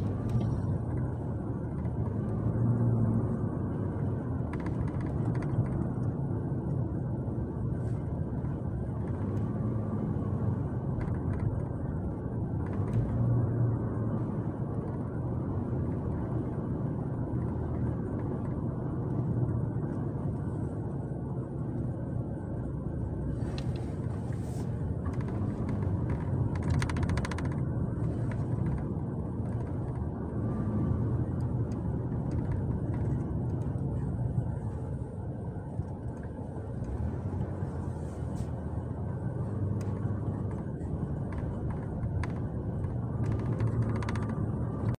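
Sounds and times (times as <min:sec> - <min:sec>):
car engine and road noise: 0:00.0 - 0:45.0.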